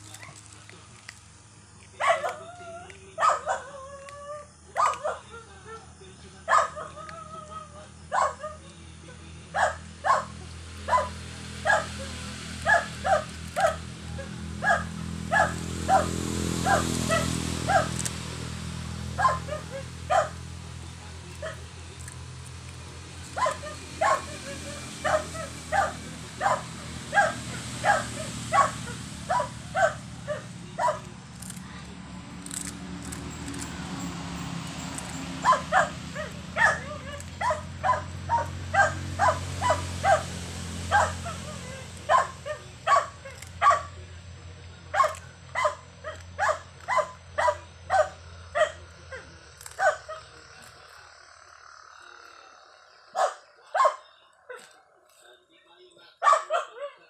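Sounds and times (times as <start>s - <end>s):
dog barking: 2.0s - 2.5s, 3.2s - 3.7s, 4.7s - 5.3s, 6.4s - 7.2s, 8.1s - 8.7s, 9.5s - 20.5s, 21.2s - 22.2s, 23.2s - 31.8s, 34.7s - 44.1s, 44.8s - 50.4s, 53.1s - 54.7s, 56.1s - 57.0s.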